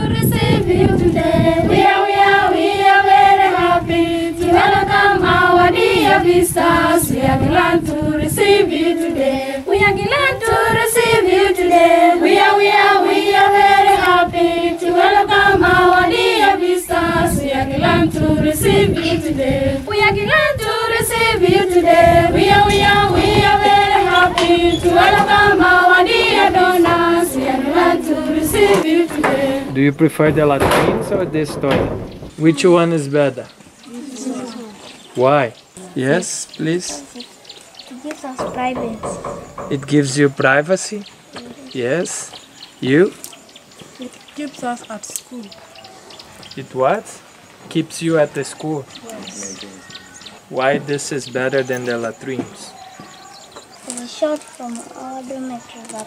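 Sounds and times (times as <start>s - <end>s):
choir singing: 0.0s - 30.3s, 50.5s - 53.3s.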